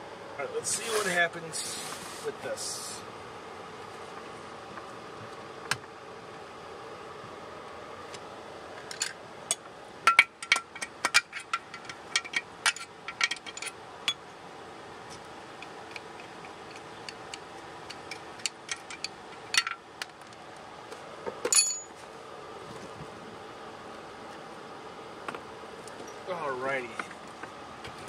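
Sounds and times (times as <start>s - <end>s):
wrench clinking on metal fittings: 21.4s - 21.9s.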